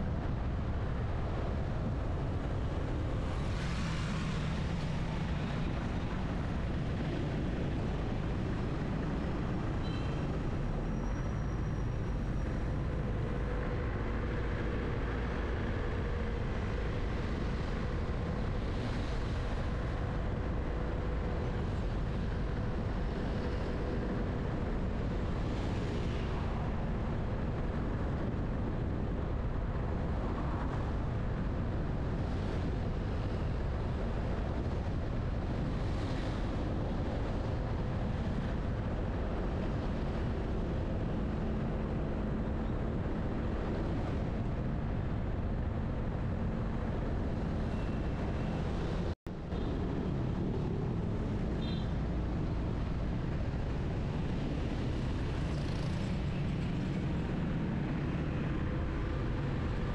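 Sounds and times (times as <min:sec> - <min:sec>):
vehicles passing by: 0:11.5 - 0:59.9.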